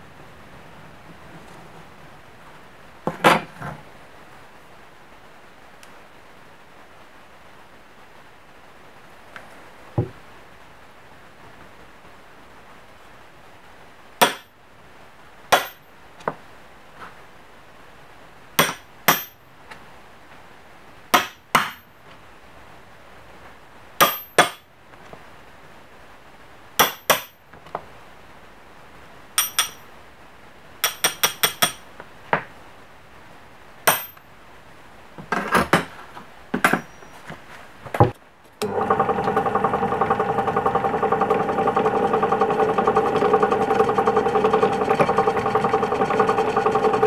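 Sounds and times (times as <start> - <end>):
sharp metallic taps: 29.4 - 29.8.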